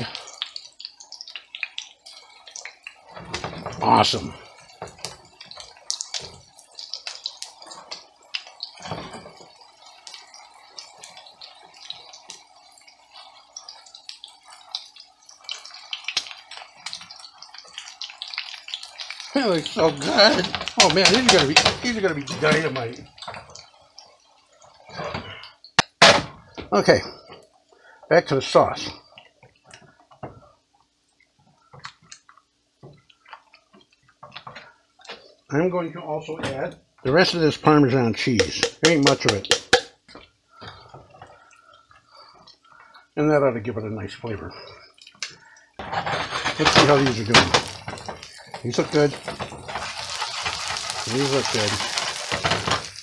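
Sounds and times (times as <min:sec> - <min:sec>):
oil crackling and popping: 0:00.0 - 0:35.5, 0:38.2 - 0:43.2, 0:44.2 - 0:53.0
patties sizzling in hot oil: 0:00.0 - 0:53.0
spatula knocking against pot: 0:38.4 - 0:39.9
spatula stirring thick sauce: 0:44.6 - 0:53.0.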